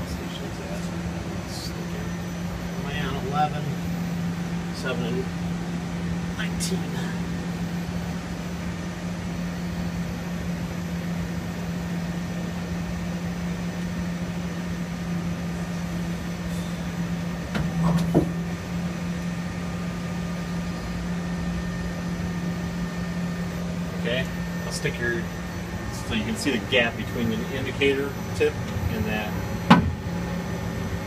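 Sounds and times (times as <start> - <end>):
lathe running with low hum: 0.0 - 31.0
loud machine clunk: 29.6 - 30.1.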